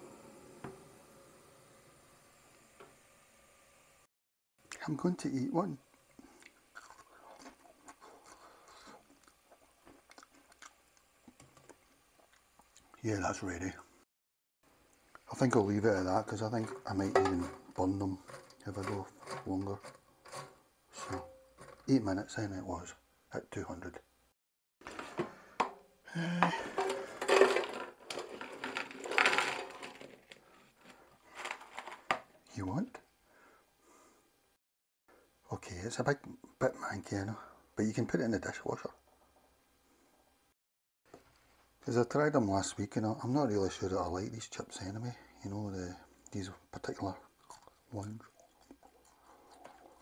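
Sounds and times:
person chewing crunchy chip: 6.4 - 9.4, 47.4 - 49.9
chips clattering onto a plate: 26.5 - 30.4, 31.3 - 32.2.

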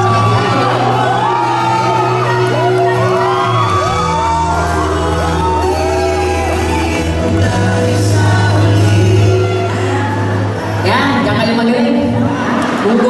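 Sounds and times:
backing track with bass line: 0.0 - 13.0
man singing into a microphone: 3.9 - 11.4.

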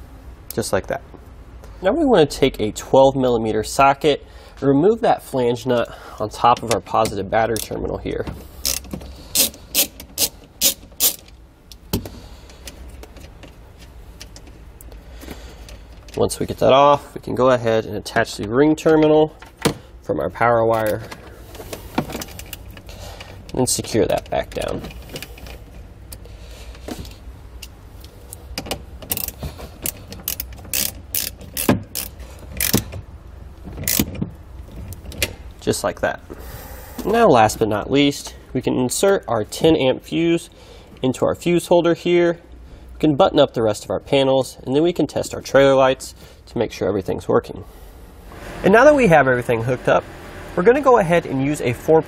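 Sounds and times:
socket ratchet clicking: 8.6 - 11.8, 28.6 - 33.0, 33.8 - 34.2.

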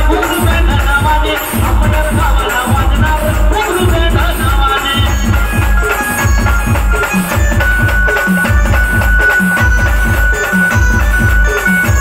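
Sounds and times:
heavy bass drum beat: 0.0 - 12.0
loud amplified band music: 0.0 - 12.0.

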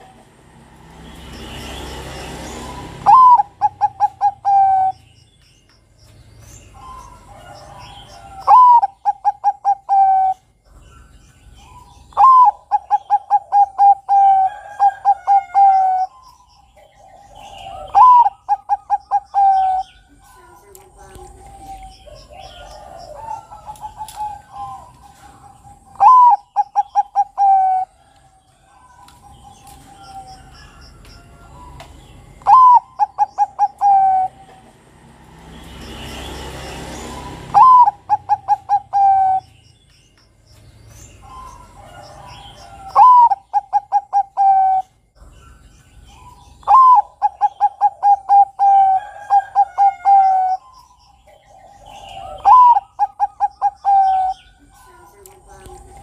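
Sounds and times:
dove cooing: 2.6 - 5.0, 6.7 - 11.0, 11.6 - 30.8, 31.4 - 35.0, 37.0 - 39.5, 41.2 - 45.5, 46.1 - 56.0.

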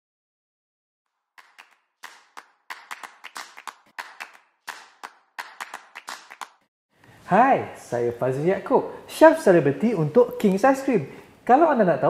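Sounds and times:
sharp clap-like hits: 1.4 - 6.7.

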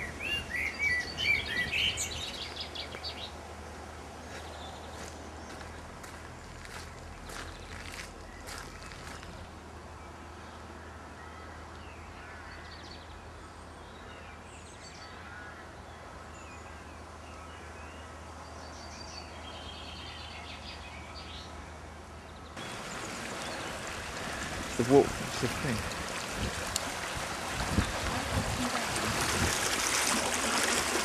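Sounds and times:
small birds chirping: 0.0 - 3.4, 4.2 - 9.5, 17.9 - 26.9
rushing floodwater: 0.0 - 4.0, 22.6 - 31.0
steady background hiss: 13.1 - 27.9.

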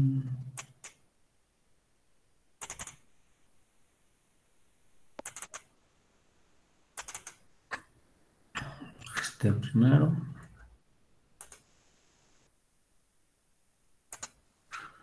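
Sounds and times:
computer mouse clicking: 0.6 - 1.0, 2.6 - 3.0, 5.2 - 5.7, 7.0 - 7.4, 11.4 - 11.7, 14.1 - 14.4.

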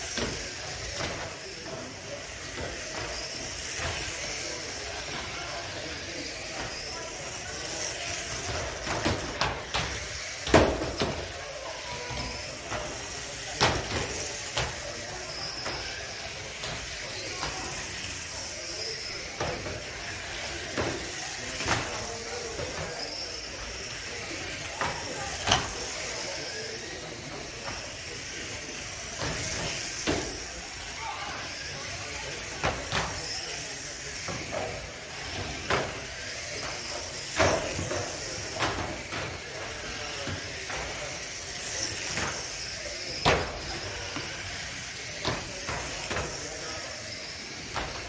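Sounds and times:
toy cars motor whine: 0.0 - 48.0.

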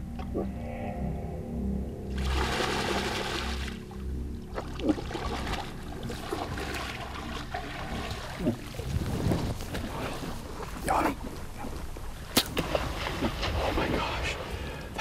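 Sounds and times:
low background music: 0.0 - 15.0
water splashing: 2.1 - 15.0.

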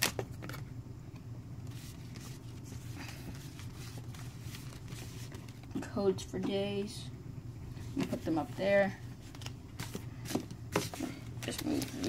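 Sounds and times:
steady low hum: 0.0 - 12.0
trading cards rustling and tapping: 9.2 - 12.0.

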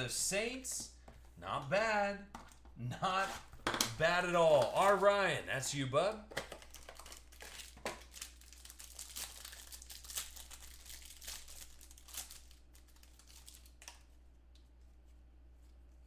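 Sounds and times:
plastic wrapping crinkling: 6.4 - 14.6.

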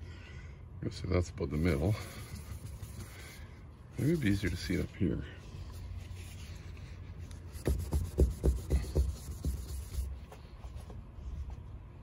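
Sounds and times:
paper wipe rubbing on painted wall: 1.6 - 10.7.

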